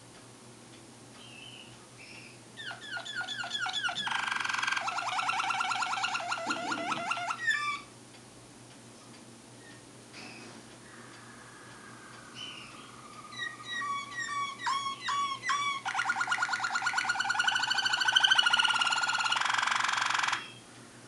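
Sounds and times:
canary singing: 1.2s - 8.0s, 10.9s - 20.7s.

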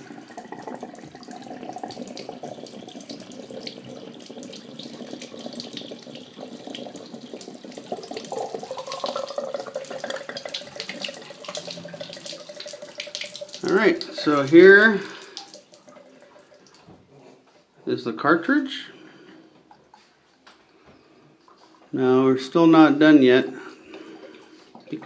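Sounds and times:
water spurting and draining: 0.0s - 17.3s, 23.3s - 25.0s.

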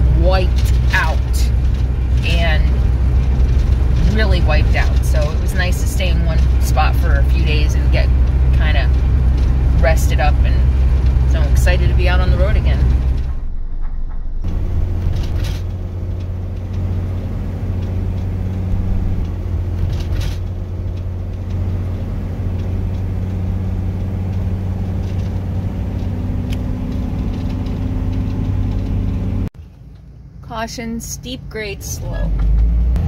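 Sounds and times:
van engine and tyres droning: 0.0s - 33.0s.

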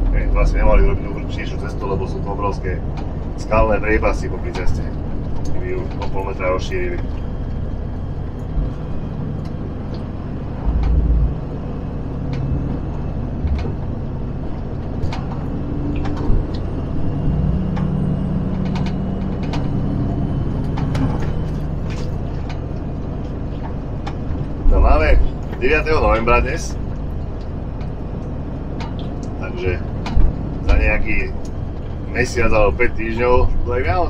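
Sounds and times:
lorry diesel engine running: 0.0s - 34.0s
road noise: 0.0s - 34.0s
clicks and rattles in cab: 0.8s - 16.8s, 17.6s - 20.0s, 20.6s - 34.0s
heavy low thump: 8.1s - 17.4s.

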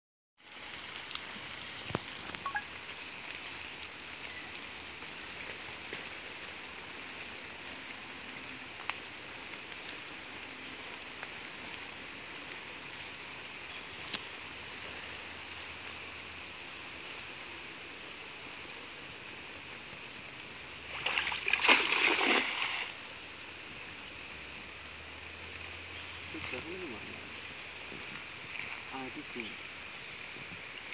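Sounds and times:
river water running: 0.4s - 30.9s
water splash: 20.8s - 23.1s.

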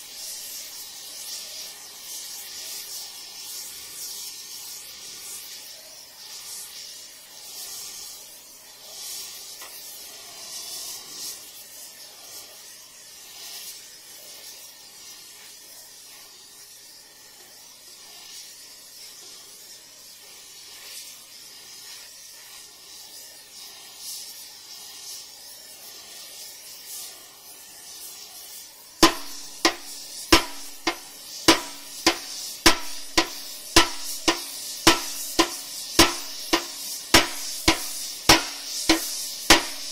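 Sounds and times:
torch hissing: 0.0s - 39.9s
hammer ringing on steel: 29.0s - 39.9s.

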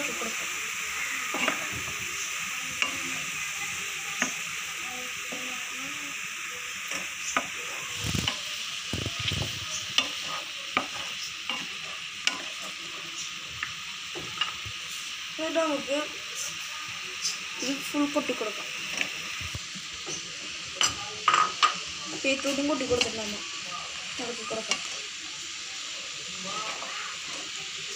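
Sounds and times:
food sizzling in frying pan: 0.0s - 27.9s
spatula scraping pan: 6.9s - 13.3s.

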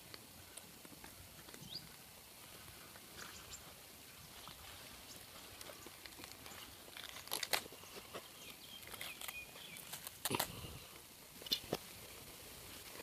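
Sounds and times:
fire crackling: 0.0s - 13.0s.

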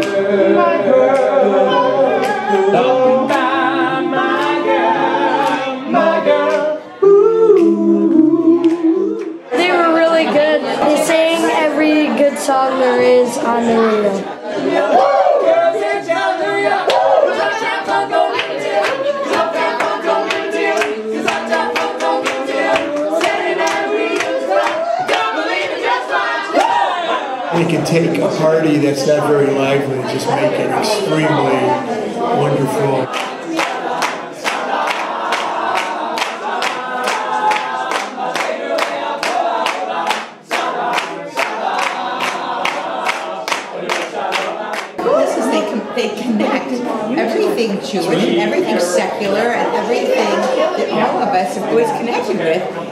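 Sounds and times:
men singing a cappella: 0.0s - 9.7s, 13.4s - 45.6s
people clapping along: 0.0s - 10.5s, 14.6s - 27.9s, 32.4s - 45.8s.

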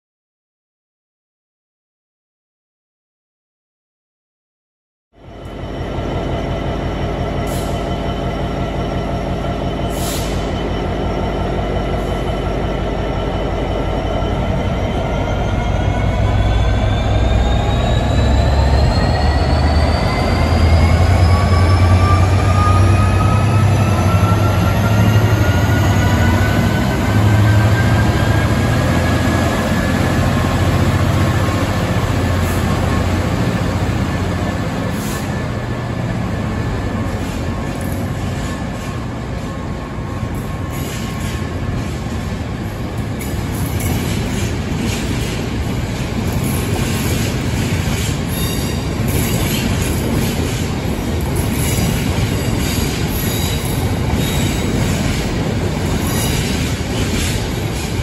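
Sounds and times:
diesel locomotive engine working hard: 5.2s - 58.0s
rising whine: 12.4s - 38.0s.

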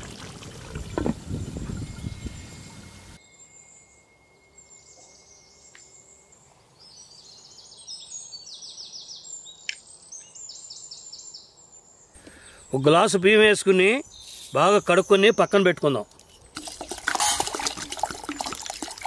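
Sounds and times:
small birds chirping: 4.8s - 16.5s.

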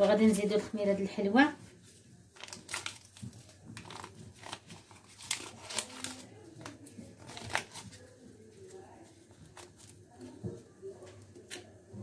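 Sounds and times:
paper packet crinkling: 2.3s - 10.4s.

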